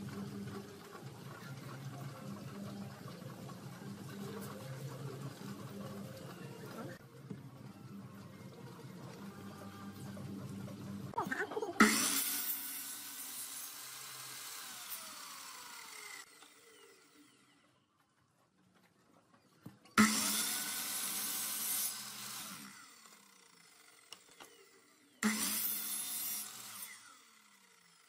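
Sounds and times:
miter saw cutting wood: 11.8s - 17.7s, 20.0s - 28.0s
saw motor winding down: 11.8s - 17.8s, 20.0s - 28.0s.

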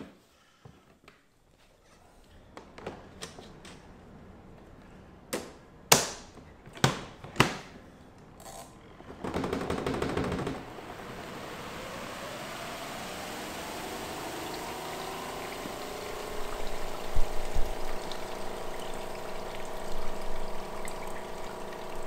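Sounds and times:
spin dryer motor whirring: 8.1s - 22.0s.

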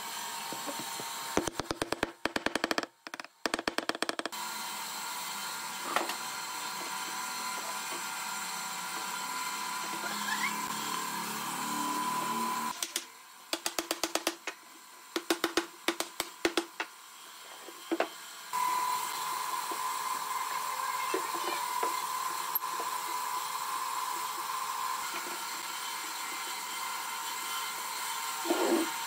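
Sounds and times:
power tool whining: 0.3s - 12.8s.

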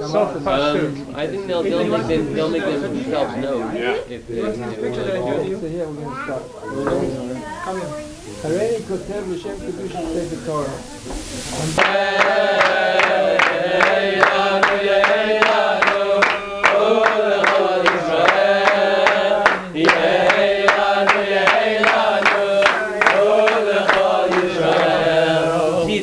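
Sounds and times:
group of people singing: 0.0s - 5.9s, 6.6s - 26.0s
hands clapping in time: 11.8s - 26.0s.

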